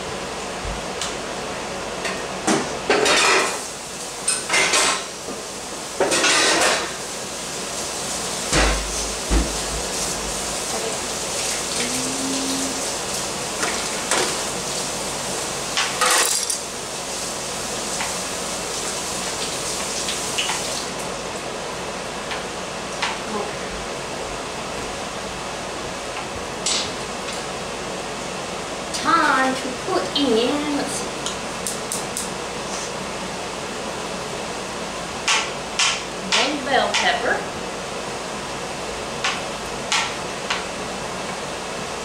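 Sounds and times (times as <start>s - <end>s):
pots and pans clattering: 2.1s - 3.6s, 4.3s - 5.1s, 6.0s - 7.0s, 15.8s - 16.6s.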